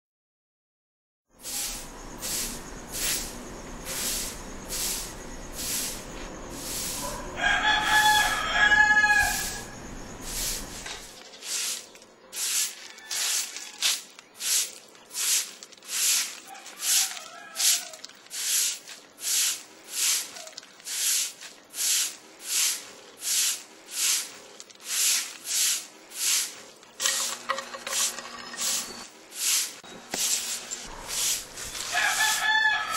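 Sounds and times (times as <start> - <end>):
rooster crowing: 7.0 - 9.8, 12.7 - 13.9, 16.4 - 18.1, 31.9 - 32.9.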